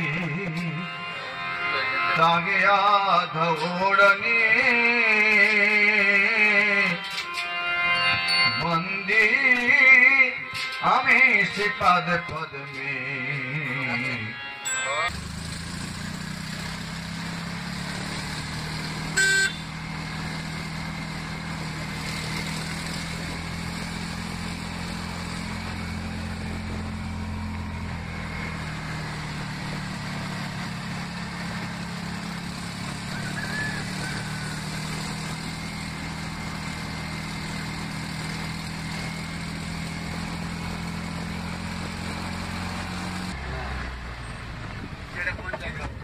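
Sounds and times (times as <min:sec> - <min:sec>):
vehicle engine hum and road noise: 0:00.0 - 0:46.0
car horn beep: 0:19.2 - 0:19.7.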